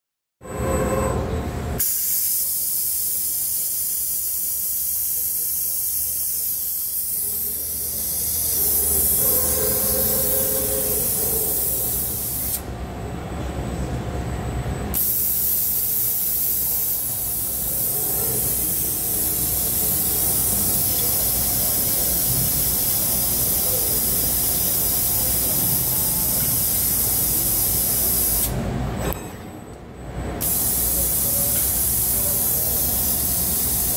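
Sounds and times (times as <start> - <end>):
low machine hum: 0.4 - 1.8, 7.1 - 15.9
compressed air hissing: 1.8 - 12.7, 15.0 - 28.6, 30.4 - 33.9.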